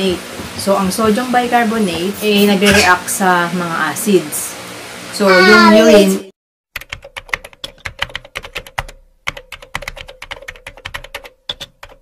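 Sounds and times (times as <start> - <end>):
keyboard typing clicks: 6.8 - 12.0.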